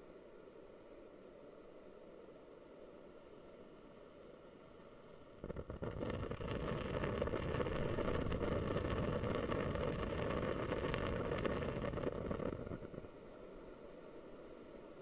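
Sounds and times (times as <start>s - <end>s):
faint steady hiss: 0.0s - 15.0s
humidifier bubbling pops: 5.4s - 13.1s.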